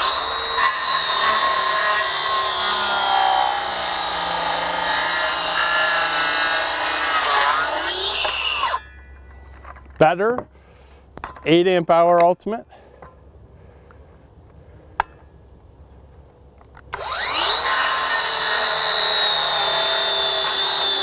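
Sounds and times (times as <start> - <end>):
circular saw cutting board: 0.0 - 8.9.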